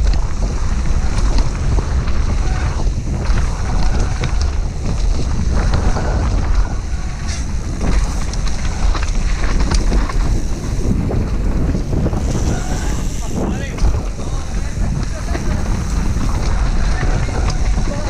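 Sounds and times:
bike rattle: 0:00.0 - 0:18.0
tyre rumble: 0:00.0 - 0:18.0
wind buffeting microphone: 0:00.0 - 0:18.0.

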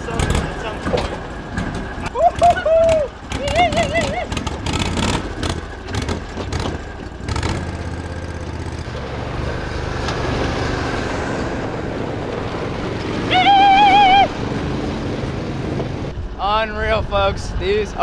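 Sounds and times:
vehicle engine running: 0:00.0 - 0:16.2
wavering warbling tone: 0:13.2 - 0:14.5.

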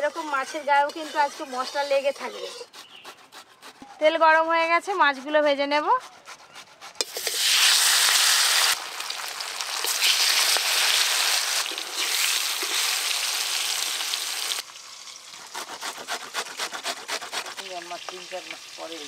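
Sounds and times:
hot oil sizzling: 0:07.0 - 0:15.8, 0:17.3 - 0:19.0.

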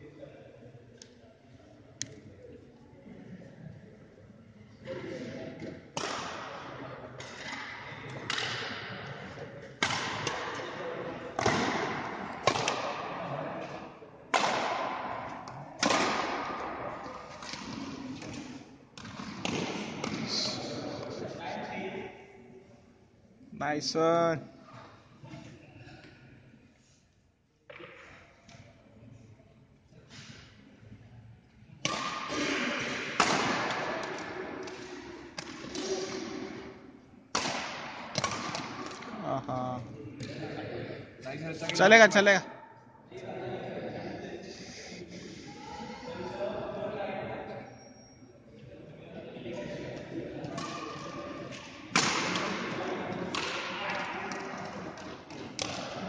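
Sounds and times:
racket hitting shuttlecock: 0:06.0 - 0:08.8, 0:09.8 - 0:10.7, 0:11.4 - 0:13.2, 0:14.3 - 0:20.3, 0:31.8 - 0:39.2, 0:50.4 - 0:56.0.

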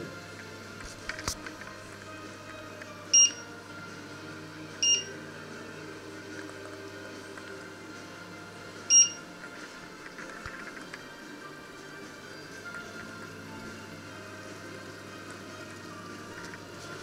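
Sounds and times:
short electronic beeps: 0:03.1 - 0:03.5, 0:04.8 - 0:05.1, 0:08.9 - 0:09.2
low steady hum: 0:08.8 - 0:09.6.

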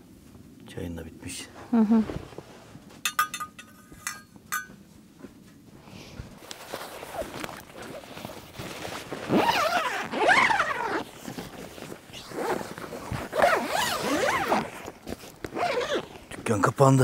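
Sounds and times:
tent zipper being pulled: 0:06.5 - 0:16.3.

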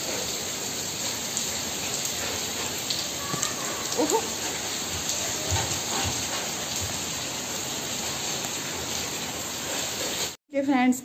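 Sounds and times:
heavy rain falling: 0:00.0 - 0:10.4.

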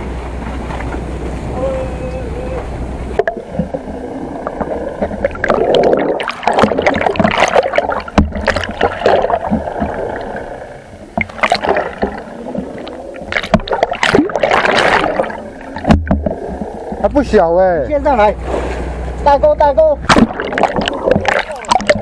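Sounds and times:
underwater gurgling and sloshing: 0:00.0 - 0:22.0
bubbling: 0:02.4 - 0:17.4, 0:20.0 - 0:22.0.

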